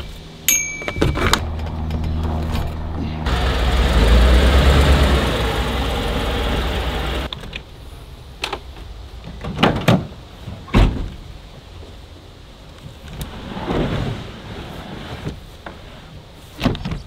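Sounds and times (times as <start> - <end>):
pickup truck engine rumble: 1.2 - 7.3.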